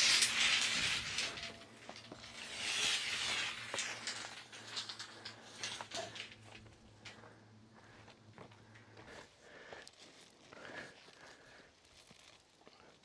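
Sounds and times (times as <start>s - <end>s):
steel bar scraping: 0.0s - 7.2s.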